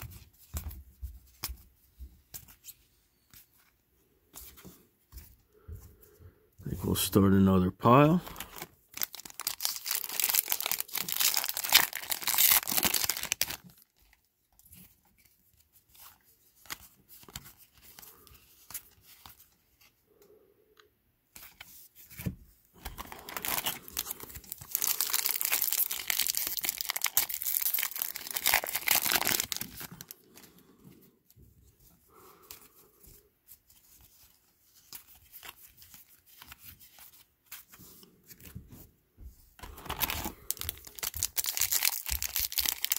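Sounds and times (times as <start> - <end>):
foil wrappers tearing and crinkling: 8.3 - 13.9, 22.9 - 30.1, 39.7 - 42.9.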